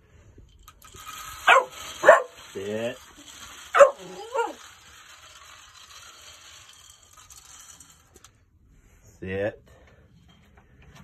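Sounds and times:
puppy whining: 3.8 - 4.6
puppy yipping: 3.8 - 4.6.

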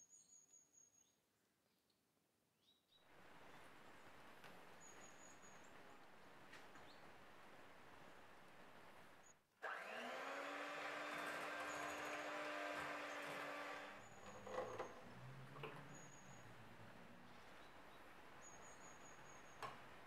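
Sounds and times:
soft steady hiss: 3.0 - 9.6, 14.0 - 20.0
electric hand mixer whirring: 9.6 - 15.0.

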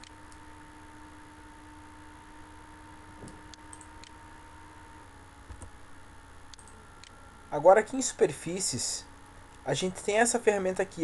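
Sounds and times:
faint electrical hum: 0.0 - 11.0
computer mouse clicks: 3.2 - 4.2, 6.5 - 7.2.

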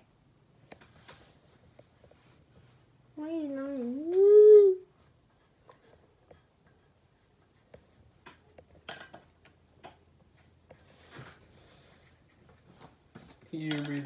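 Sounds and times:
pencil scratching on paper: 5.0 - 8.6.

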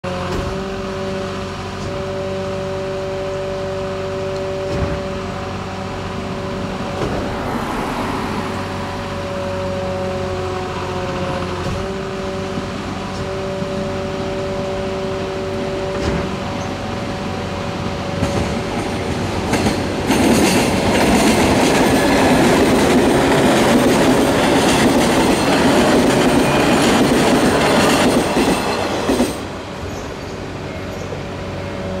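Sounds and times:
electric train passing: 0.1 - 32.0
train wheels clattering over rails: 17.9 - 31.2.

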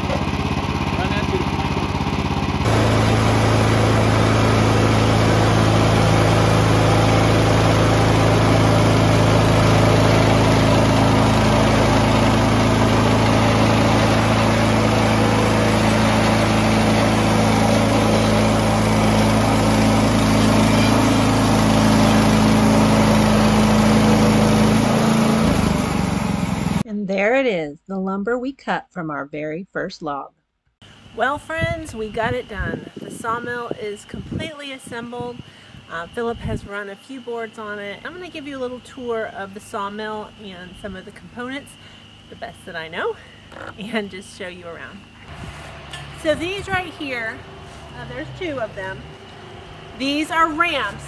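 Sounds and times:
bandsaw mill engine under load: 0.0 - 26.8, 37.5 - 51.0.

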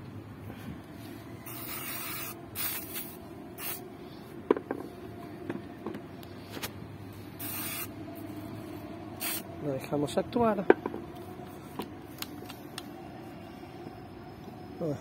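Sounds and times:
aerosol spray can hissing: 1.4 - 3.8, 7.4 - 7.9, 9.2 - 9.5.

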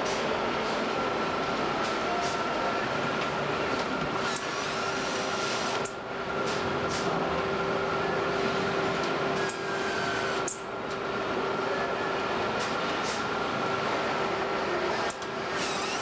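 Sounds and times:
assembly line machinery drone: 0.0 - 16.0.

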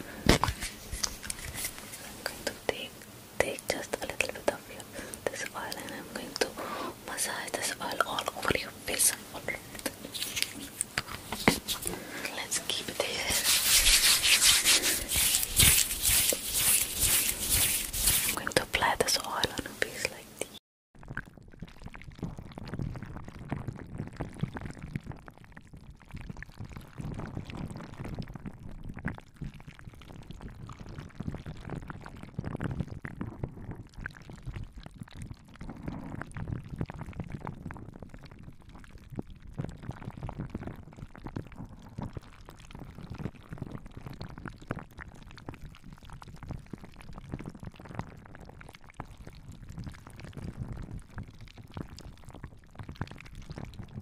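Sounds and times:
hands rubbing near microphone: 0.3 - 2.6, 9.1 - 20.5.

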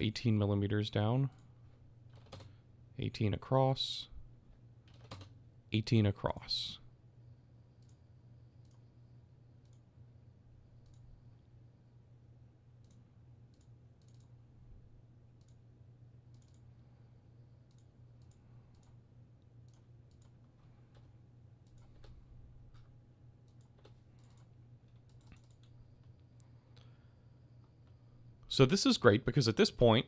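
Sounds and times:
low steady hum: 0.0 - 30.0
computer mouse and keyboard clicks: 2.1 - 2.6, 4.8 - 5.3, 10.8 - 11.1, 12.8 - 14.3, 16.3 - 16.7, 19.6 - 26.2.

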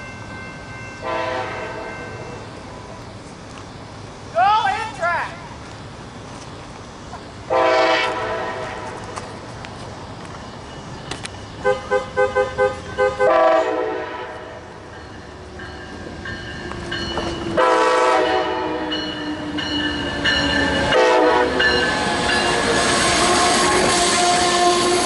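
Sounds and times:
train running noise: 0.0 - 25.0
train horn blasts: 1.0 - 2.1, 7.5 - 9.0, 11.6 - 14.6, 17.6 - 19.0, 20.9 - 21.7, 23.0 - 25.0.

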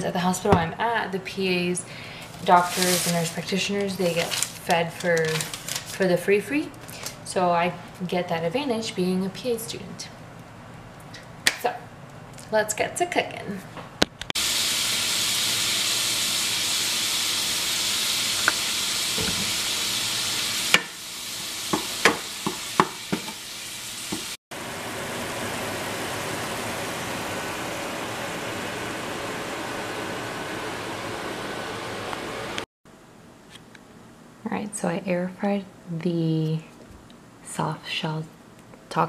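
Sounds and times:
meat sizzling in a frying pan: 14.4 - 24.4.

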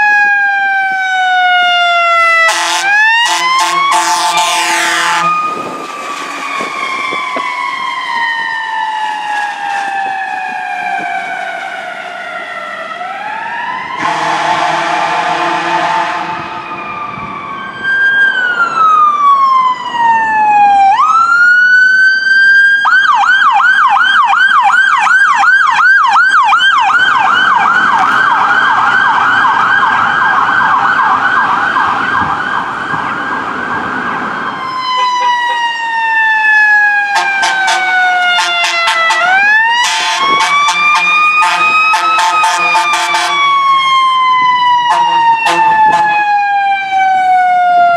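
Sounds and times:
fire truck siren wailing and yelping: 0.0 - 47.9
air horn blast: 2.4 - 5.8, 14.0 - 16.6, 34.9 - 35.7, 37.1 - 43.6, 44.8 - 46.2.

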